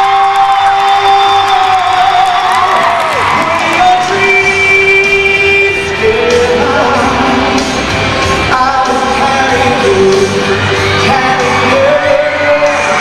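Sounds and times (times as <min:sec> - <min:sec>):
backing track over loudspeakers: 0:00.0 - 0:13.0
boy singing into a microphone: 0:03.5 - 0:07.6, 0:08.4 - 0:13.0.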